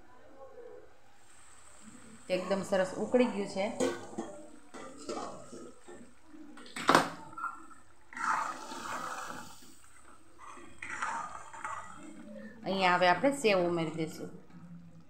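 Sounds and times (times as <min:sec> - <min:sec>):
thick gravy bubbling: 0:01.2 - 0:15.0
steel spoon scraping pot: 0:10.4 - 0:12.2.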